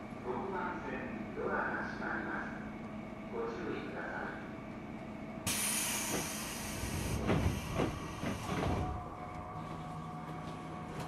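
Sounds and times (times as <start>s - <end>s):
compressed air hiss: 5.5s - 8.5s.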